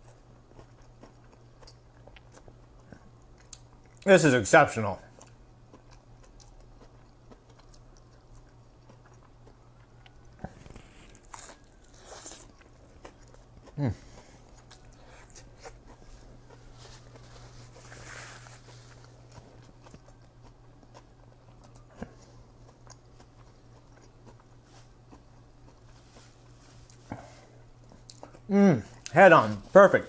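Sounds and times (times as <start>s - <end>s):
faint chewing: 0.0s - 4.1s, 5.0s - 30.0s
steady low hum: 0.0s - 30.0s
paper napkin rustle: 16.1s - 19.3s, 29.3s - 30.0s.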